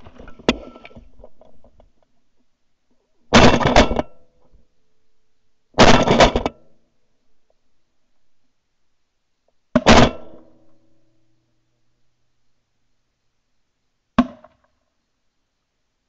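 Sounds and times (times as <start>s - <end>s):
shotgun shots: 9.8s - 10.4s.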